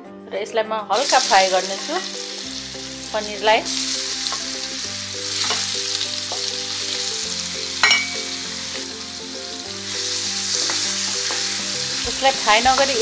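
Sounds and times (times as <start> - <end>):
cheese sizzling in hot oil: 1.0 - 13.0
utensil clinking against pan: 7.8 - 8.3.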